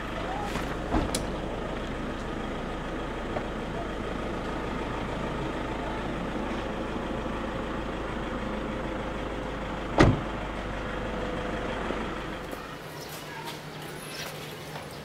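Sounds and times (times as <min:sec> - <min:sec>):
sharp thump: 0:10.0 - 0:10.3.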